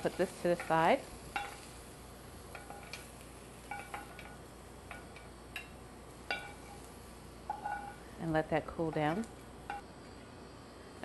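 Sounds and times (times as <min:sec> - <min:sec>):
metal tongs clinking: 0:00.0 - 0:01.7, 0:02.5 - 0:06.9, 0:07.5 - 0:08.0.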